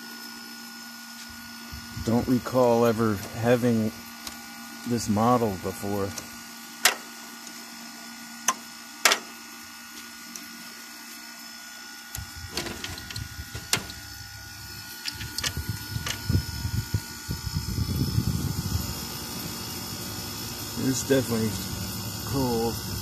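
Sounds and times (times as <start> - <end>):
air conditioner humming: 1.2 - 23.0
handling rumbling and knocking: 12.4 - 14.1.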